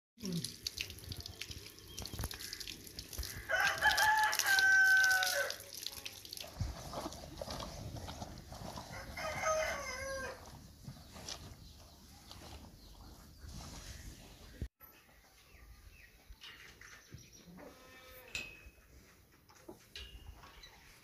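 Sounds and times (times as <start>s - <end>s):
rooster crowing: 3.5s - 5.6s, 8.9s - 10.4s.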